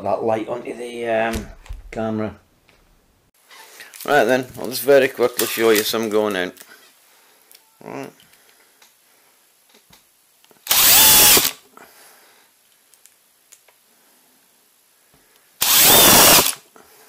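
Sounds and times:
cordless drill driving screws: 10.7s - 11.6s, 15.6s - 16.6s.

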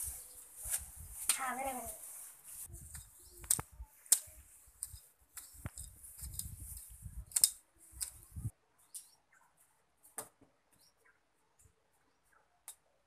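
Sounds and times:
sharp clicks: 3.4s - 6.5s, 7.3s - 8.2s.

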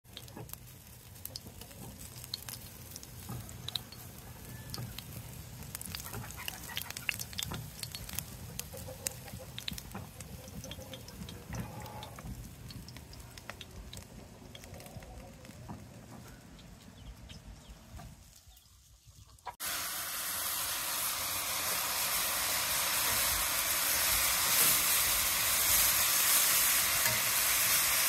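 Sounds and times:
sharp crackles and clicks: 0.1s - 18.5s, 24.0s - 28.0s
chickens clucking: 0.2s - 19.6s.

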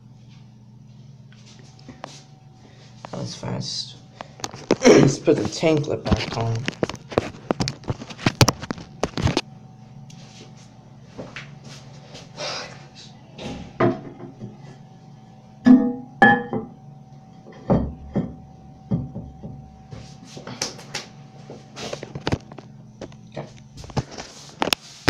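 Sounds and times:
faint steady hum: 0.0s - 25.0s
toilet tank parts knocking and clinking: 15.7s - 16.7s.

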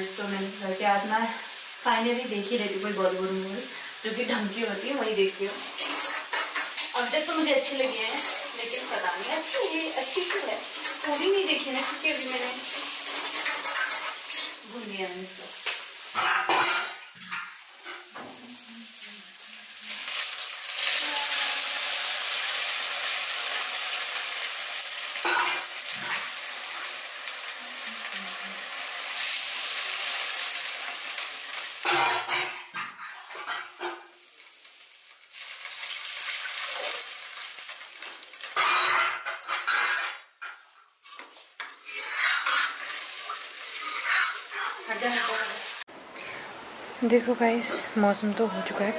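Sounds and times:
water sizzling in hot pan: 0.0s - 45.9s
metal ladle scraping a pan: 5.6s - 14.7s, 38.4s - 45.5s.

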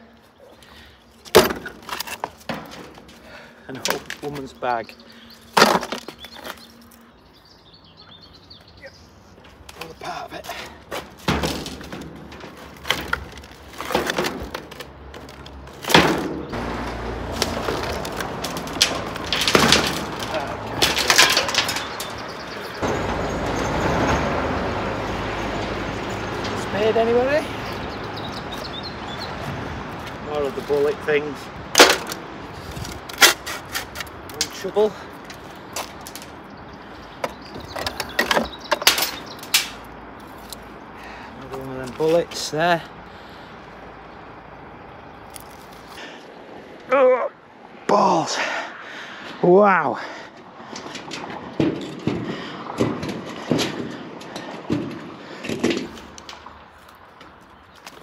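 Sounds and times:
knocks and scrapes: 1.2s - 4.6s, 5.4s - 7.0s, 9.5s - 24.8s, 31.7s - 40.8s, 50.6s - 58.0s
rope hauled on metal footbridge: 9.5s - 24.2s.

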